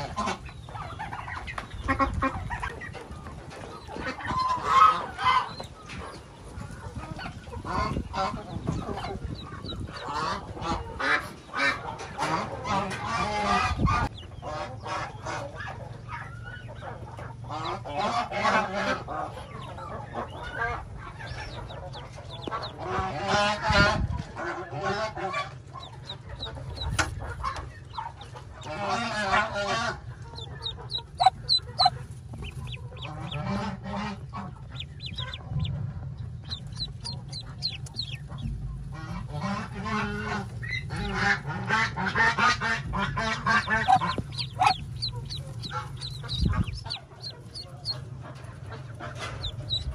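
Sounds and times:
ducklings peeping: 0:00.0 - 0:49.9
duck hen harsh calls: 0:07.6 - 0:15.8, 0:17.4 - 0:35.7, 0:36.4 - 0:48.1.

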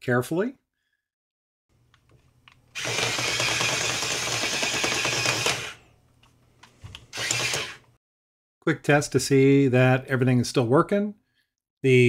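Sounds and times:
toy motors whirring with rattle: 0:02.8 - 0:05.8, 0:07.1 - 0:07.8.

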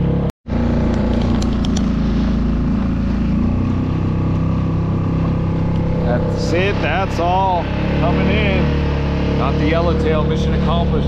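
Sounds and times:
outboard motor running: 0:00.0 - 0:11.0
wind: 0:00.0 - 0:11.0
water rushing: 0:01.9 - 0:11.0.

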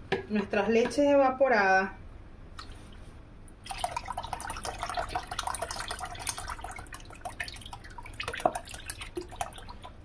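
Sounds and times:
milk trickling and splashing: 0:03.6 - 0:10.0.

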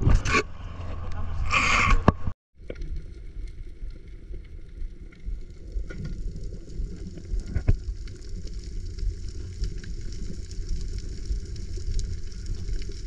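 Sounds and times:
crackling clicks underwater: 0:02.6 - 0:13.0.

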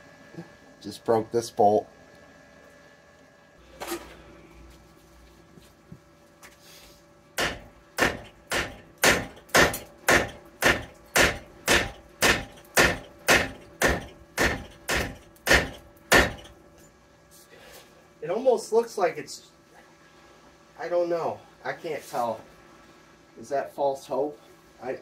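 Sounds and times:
sledgehammer pounding metal hub: 0:07.4 - 0:16.6.

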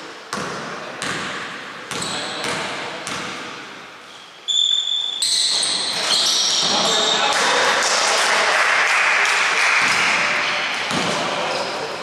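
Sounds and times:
basketball bouncing on wooden court: 0:00.3 - 0:03.6, 0:10.7 - 0:11.2
high-pitched shoe squeaks: 0:04.1 - 0:07.2.

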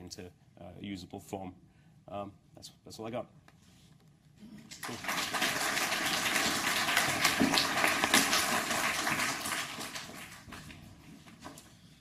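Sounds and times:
audience applauding: 0:04.7 - 0:10.9.

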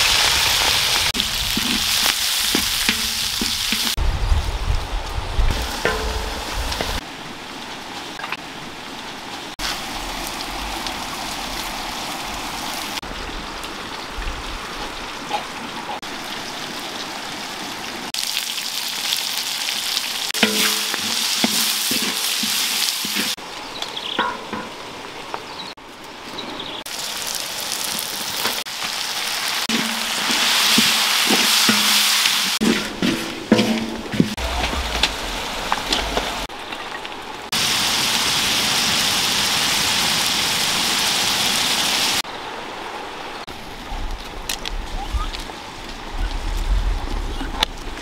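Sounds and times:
food sizzling in a wok: 0:00.0 - 0:04.0, 0:05.5 - 0:07.0, 0:18.2 - 0:23.4, 0:26.9 - 0:34.3, 0:37.6 - 0:42.2
spatula scraping a wok: 0:20.4 - 0:23.4, 0:29.7 - 0:34.4.

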